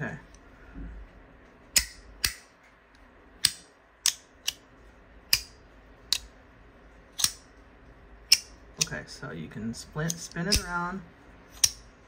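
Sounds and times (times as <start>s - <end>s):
sharp metallic magnetic clicks: 1.7s - 2.5s, 3.4s - 4.7s, 5.3s - 6.4s, 7.1s - 7.5s, 8.2s - 9.0s, 10.0s - 10.8s, 11.5s - 11.9s.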